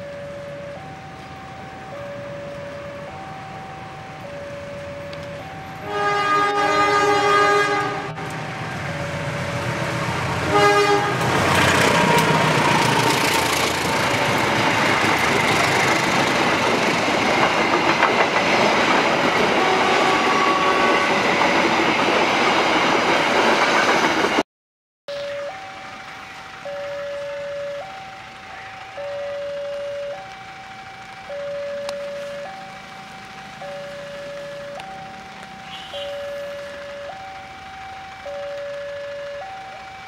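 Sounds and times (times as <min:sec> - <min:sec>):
train wheels on rails: 0:00.2 - 0:24.4, 0:25.2 - 0:40.0
locomotive horn blasts: 0:05.8 - 0:08.3, 0:10.4 - 0:11.4, 0:19.5 - 0:21.2, 0:35.6 - 0:36.6
clickety-clack of rail joints: 0:09.5 - 0:24.4.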